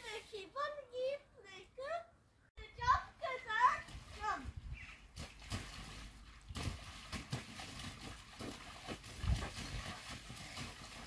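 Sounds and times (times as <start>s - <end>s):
garden hose spraying: 0.0s - 0.6s
water splashing in a pool: 3.5s - 11.0s.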